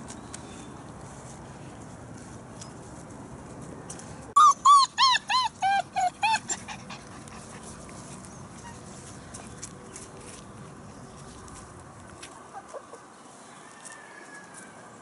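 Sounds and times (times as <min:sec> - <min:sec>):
puppy yelping: 0:04.4 - 0:07.4.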